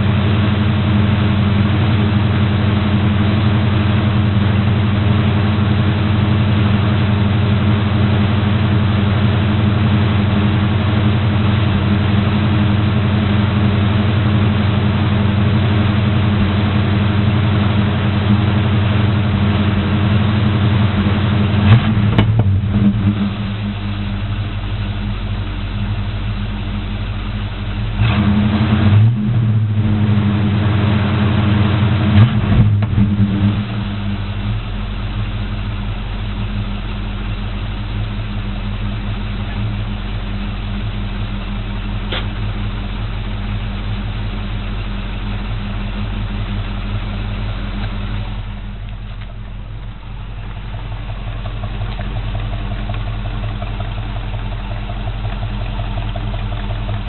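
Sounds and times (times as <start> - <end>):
pickup truck engine idling: 0.0 - 28.1, 29.6 - 57.0.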